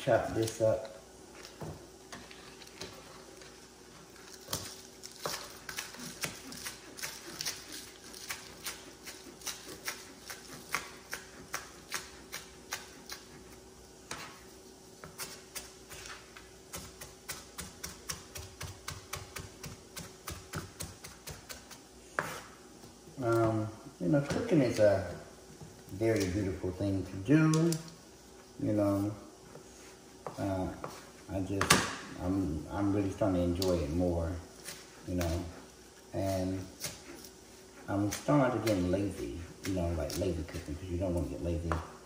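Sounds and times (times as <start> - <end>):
knife chopping on cutting board: 4.5 - 13.3, 15.0 - 22.5.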